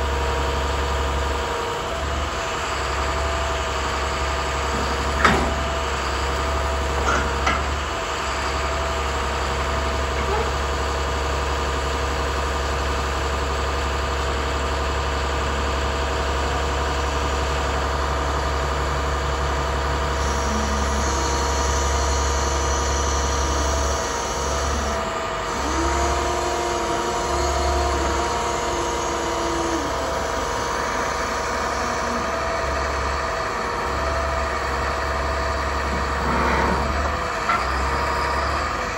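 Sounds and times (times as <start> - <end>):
diesel truck engine running: 0.0 - 38.9
short clunks: 4.7 - 7.9
steady whine: 15.2 - 38.9.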